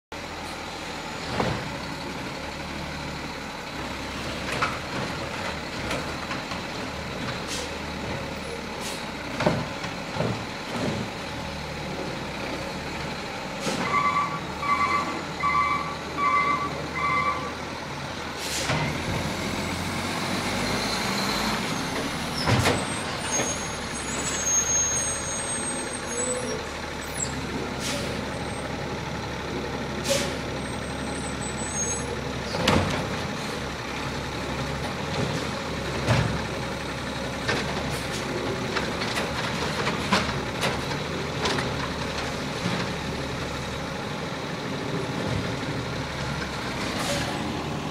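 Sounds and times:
garbage truck diesel engine: 0.1s - 47.9s
reversing beeps: 13.9s - 17.5s.

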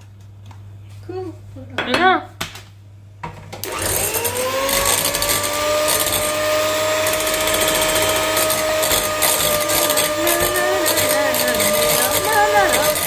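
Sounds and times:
electric mixer whining: 3.6s - 13.0s.

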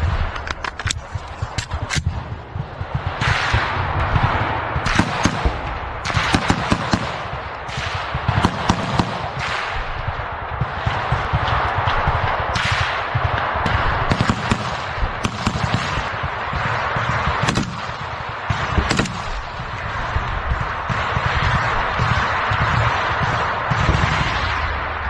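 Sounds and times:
rapid gunfire crackle: 0.0s - 25.0s
loud single gunshots: 3.0s - 19.5s.

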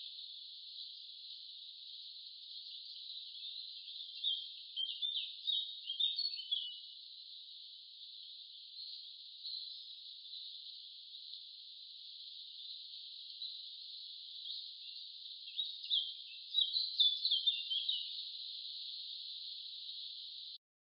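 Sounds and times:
high insect-like hiss: 0.0s - 20.6s
short bird chirps: 2.7s - 6.9s, 14.3s - 20.3s.

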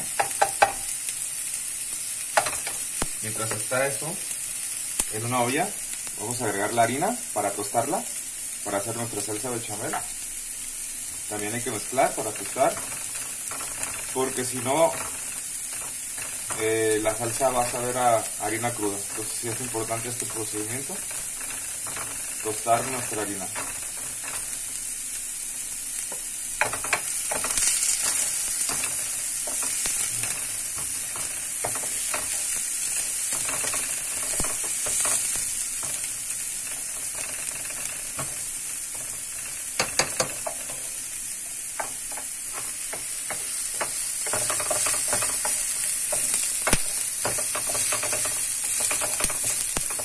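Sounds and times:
onion and garlic sizzling in oil: 0.0s - 50.0s
spatula tapping pot: 0.2s - 0.8s, 39.8s - 40.8s, 41.8s - 50.0s.

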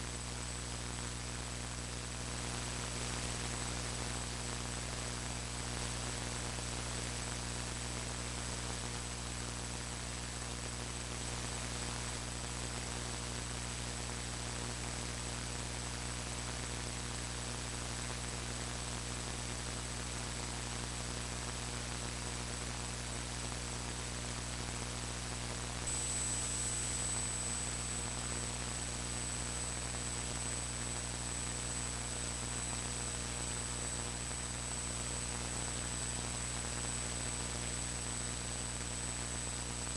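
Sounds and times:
electrical mains hum: 0.0s - 39.9s
thin high-pitched whine: 25.8s - 28.8s.

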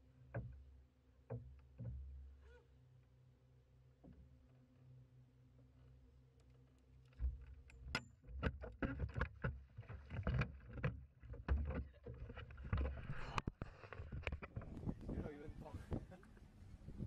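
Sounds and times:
knocks and thumps against hull: 0.3s - 2.4s, 7.2s - 15.2s.

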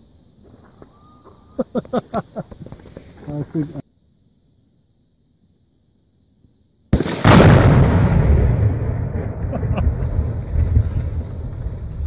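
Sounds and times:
sharp crack: 7.0s - 11.6s
explosion blast rumbling: 7.0s - 12.0s.

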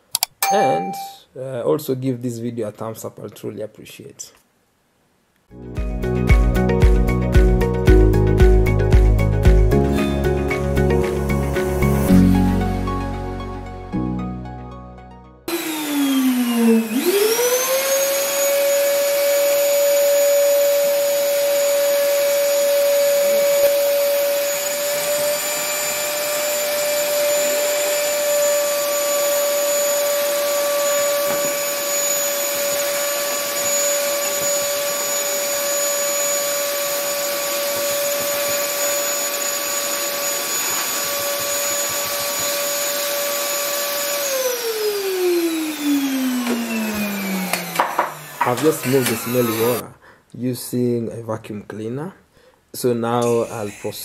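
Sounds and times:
vacuum cleaner motor whine: 15.5s - 49.8s
vacuum sucking water: 21.4s - 49.8s.

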